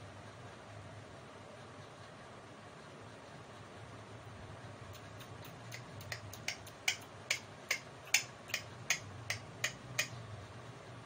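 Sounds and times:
sharp clicks: 0:04.9 - 0:10.2.

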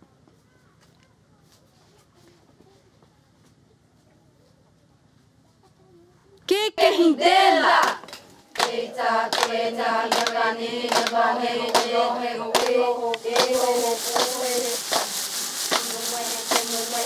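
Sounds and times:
women chanting: 0:06.5 - 0:17.0
regular percussive beat: 0:12.6 - 0:17.0.

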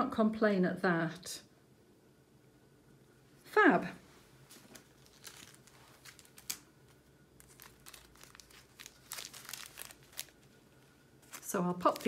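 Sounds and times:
plastic packets crinkling: 0:04.5 - 0:12.0.

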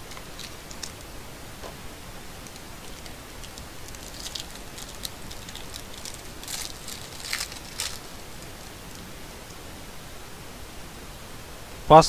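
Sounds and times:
foil wrapper crinkling: 0:00.0 - 0:01.2, 0:02.2 - 0:09.2.

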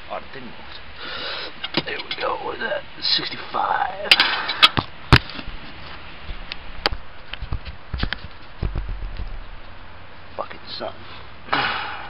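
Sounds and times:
handling clicks and knocks: 0:01.6 - 0:02.4
low thuds: 0:06.2 - 0:09.7.

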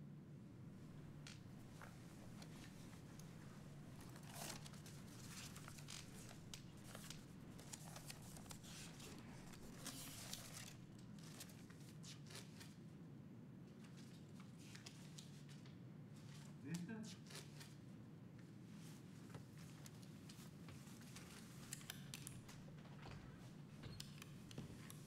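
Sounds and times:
low room hum: 0:00.0 - 0:25.0
paper rustling: 0:00.9 - 0:12.8.

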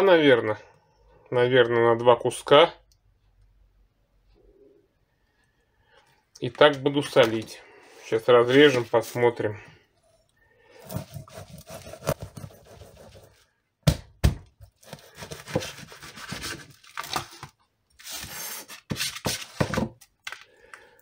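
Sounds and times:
knife sawing through frozen fish: 0:10.8 - 0:13.3, 0:14.8 - 0:17.2, 0:18.0 - 0:19.6.

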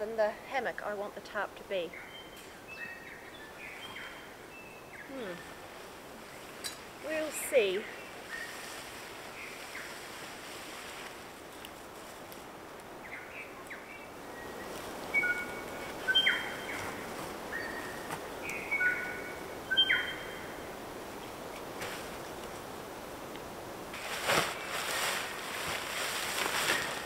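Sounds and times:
outdoor hiss: 0:00.0 - 0:27.0
birds singing whistled notes: 0:01.9 - 0:05.6, 0:07.2 - 0:10.0, 0:13.0 - 0:20.6.

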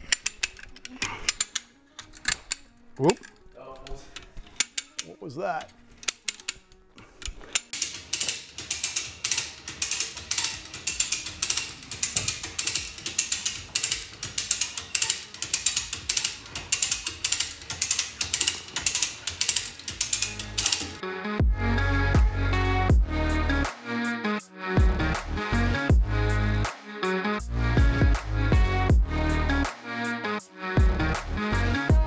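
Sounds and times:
ratchet hoist clicking: 0:04.2 - 0:05.1, 0:06.0 - 0:21.0.

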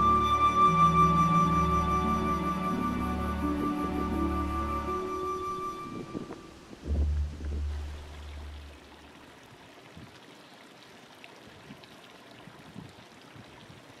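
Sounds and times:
running water hiss: 0:00.0 - 0:14.0
low rumble: 0:02.8 - 0:09.0.

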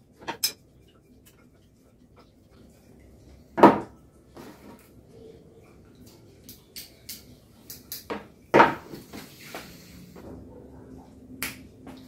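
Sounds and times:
tools clattering on workbench: 0:00.2 - 0:00.6.

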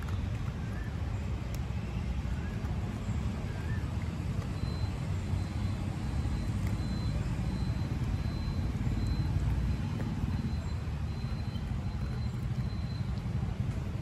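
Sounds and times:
low outdoor rumble: 0:00.0 - 0:14.0
faint high chirps: 0:03.4 - 0:13.2.

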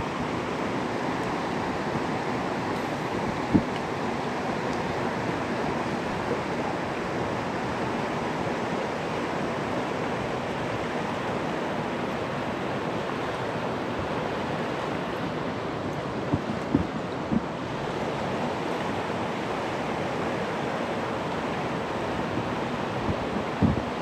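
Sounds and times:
river rushing over stones: 0:00.0 - 0:24.0.

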